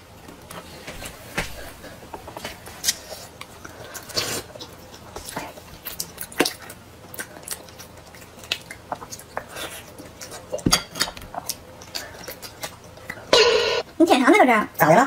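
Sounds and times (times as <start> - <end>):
chewing and biting soft food: 2.6 - 13.3.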